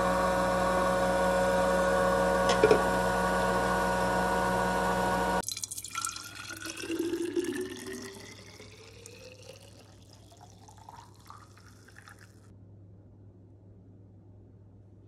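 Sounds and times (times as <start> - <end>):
machine hum: 0.0 - 5.4
juice pouring into bottle: 5.4 - 12.5.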